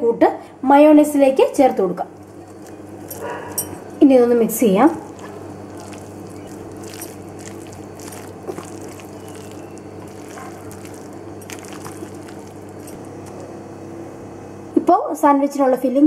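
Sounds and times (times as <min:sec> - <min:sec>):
steady low hum: 0:00.4 - 0:14.9
soft wet squishing: 0:01.5 - 0:13.6
spatula scraping glass bowl: 0:02.2 - 0:04.0, 0:04.7 - 0:13.4.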